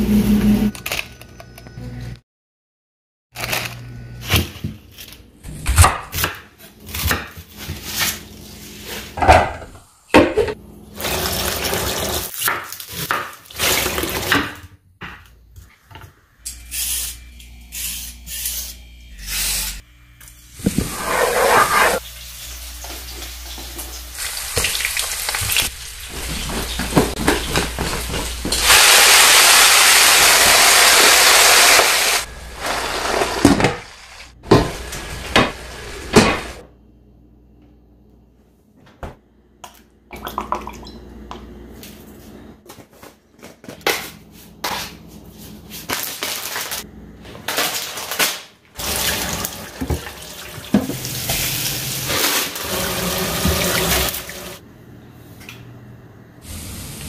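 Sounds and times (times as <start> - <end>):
tap water running: 10.9 - 12.3, 22.0 - 32.3, 48.8 - 54.6
vegetables being rinsed: 10.9 - 14.4, 22.0 - 34.0, 48.8 - 54.6.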